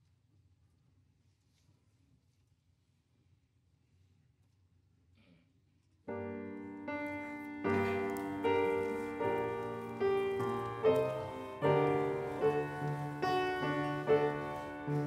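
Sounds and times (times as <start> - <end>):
piano chords ringing: 6.1 - 15.0.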